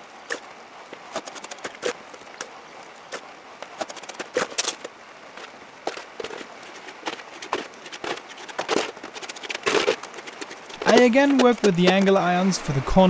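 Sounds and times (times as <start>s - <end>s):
scoop scraping and tapping: 5.9s - 12.3s.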